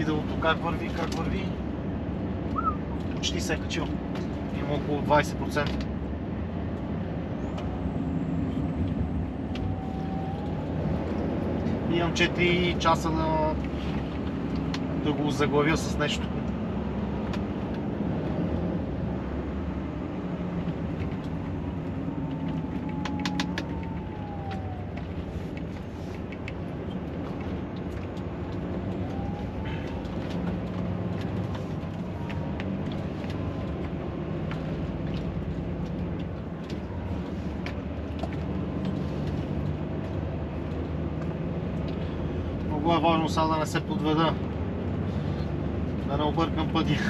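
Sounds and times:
diesel engine and road noise: 0.0s - 47.0s
sharp clicks: 22.2s - 29.0s.

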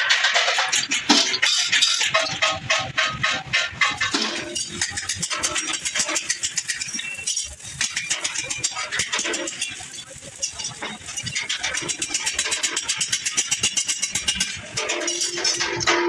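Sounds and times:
hammer striking sheet metal: 0.0s - 16.0s.

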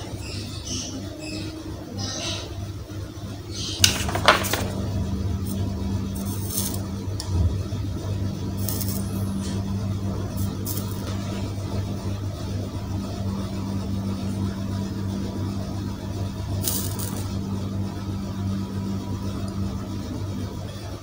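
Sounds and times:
steady low hum: 0.0s - 21.0s
soldering flux hissing: 3.7s - 7.3s, 8.0s - 15.2s, 16.2s - 17.5s.

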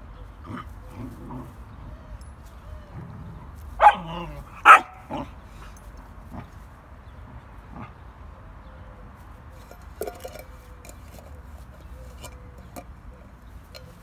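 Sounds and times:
dog barking: 3.8s - 5.3s.

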